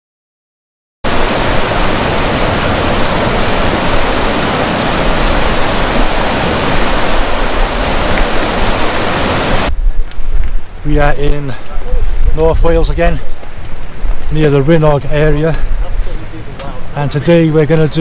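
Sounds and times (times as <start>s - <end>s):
river water roaring: 1.1s - 9.7s.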